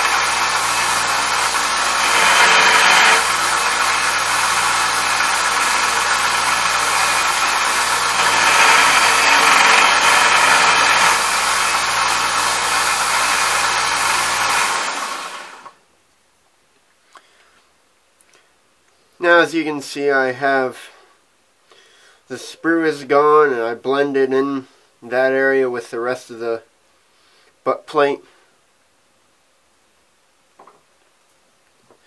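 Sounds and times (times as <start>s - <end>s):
belt sander grinding metal: 0.0s - 15.7s.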